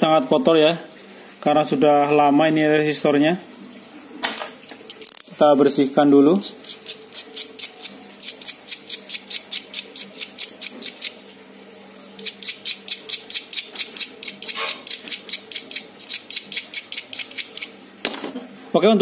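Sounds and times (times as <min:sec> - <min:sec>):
blade scraping metal: 0:12.2 - 0:17.7.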